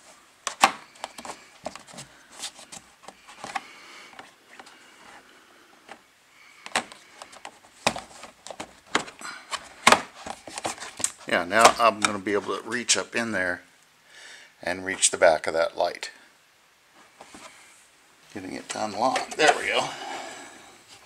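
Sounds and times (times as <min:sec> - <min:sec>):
faint rustling: 0:00.0 - 0:13.6, 0:16.1 - 0:21.0
plastic cover clicking and knocking: 0:06.6 - 0:12.2.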